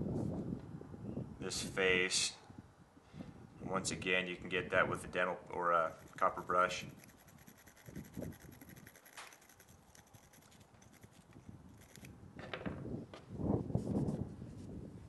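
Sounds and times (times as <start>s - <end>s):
wire brush scratching metal: 5.8s - 12.1s.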